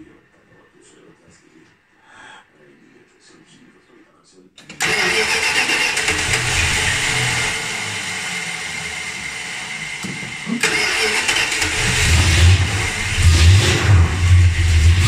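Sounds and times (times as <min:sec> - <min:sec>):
car engine starting and revving: 0:04.7 - 0:15.0.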